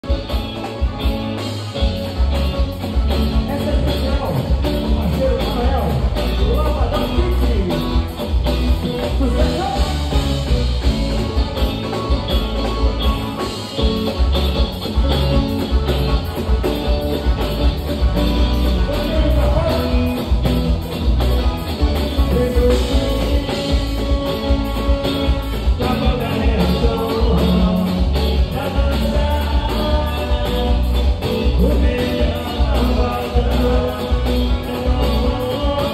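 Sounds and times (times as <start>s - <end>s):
drum kit: 0.0s - 35.9s
electric guitars: 0.0s - 35.9s
man singing into microphone: 3.4s - 8.0s, 8.8s - 10.3s, 18.6s - 20.7s, 22.0s - 35.9s.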